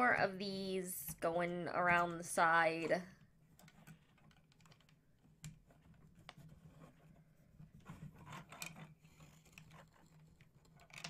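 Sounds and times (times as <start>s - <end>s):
plastic blocks clicking and rustling: 3.6s - 7.0s, 8.0s - 11.0s.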